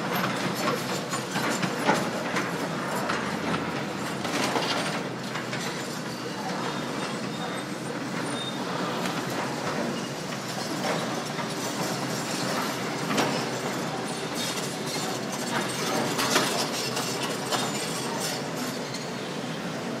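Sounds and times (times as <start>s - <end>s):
excavator machinery noise: 0.0s - 20.0s.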